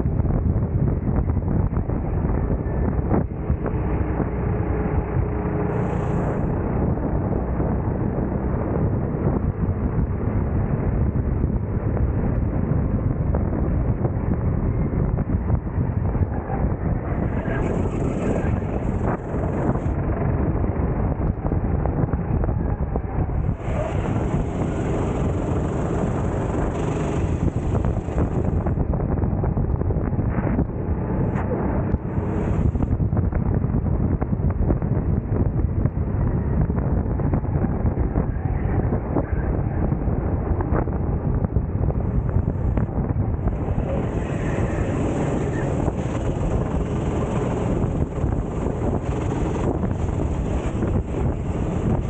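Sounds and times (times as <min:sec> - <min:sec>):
wind buffeting microphone: 0:00.0 - 0:52.0
go-kart engine racing: 0:02.6 - 0:13.0, 0:15.5 - 0:28.8, 0:30.2 - 0:32.9, 0:42.0 - 0:52.0.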